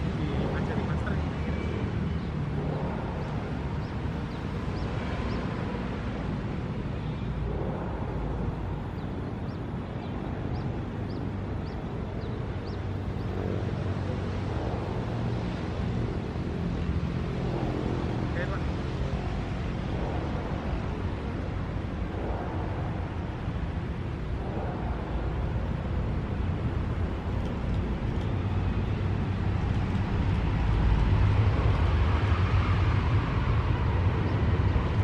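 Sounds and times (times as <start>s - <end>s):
low outdoor rumble: 0.0s - 35.0s
bird chirping: 3.2s - 5.5s, 8.9s - 13.4s.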